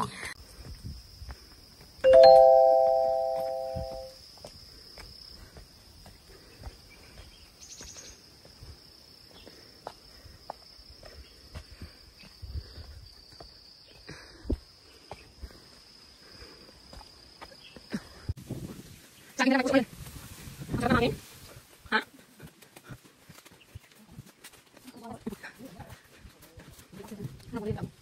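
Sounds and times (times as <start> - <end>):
insects droning: 0.3 - 18.3
footsteps on dirt path: 0.4 - 28.0.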